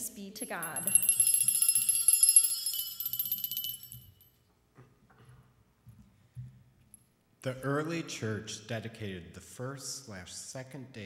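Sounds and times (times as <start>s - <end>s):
small hand bell jangling: 0.0s - 4.4s.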